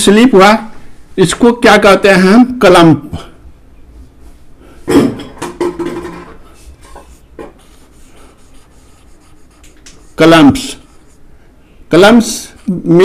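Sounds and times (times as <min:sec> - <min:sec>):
marker scratching on whiteboard: 0:06.6 - 0:11.2, 0:12.2 - 0:13.0.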